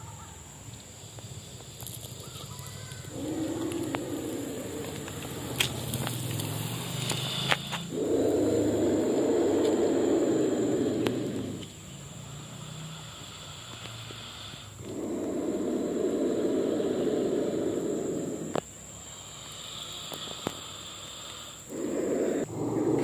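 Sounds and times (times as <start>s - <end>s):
fainter higher hiss: 2.2s - 11.8s
snake growling hiss: 3.0s - 23.0s.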